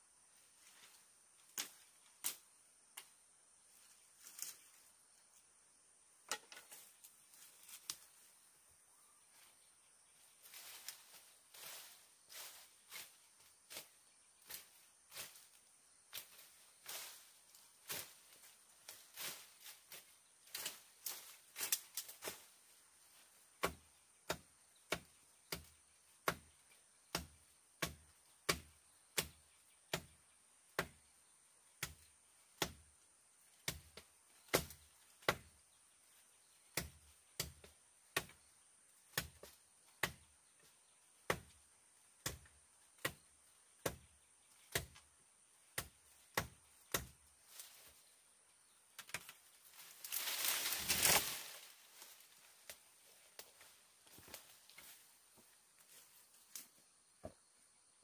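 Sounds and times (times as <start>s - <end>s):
blade chopping into wood: 34.5s - 35.5s, 45.8s - 47.2s.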